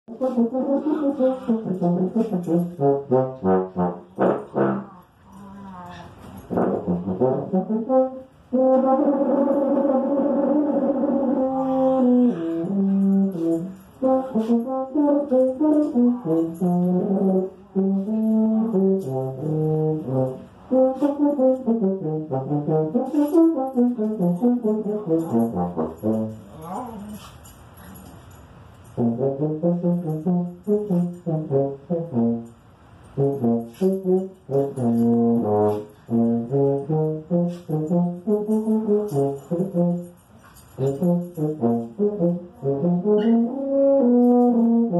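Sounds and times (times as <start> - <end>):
tuba playing a melody: 0.1 - 5.3, 6.0 - 27.6, 28.8 - 44.9.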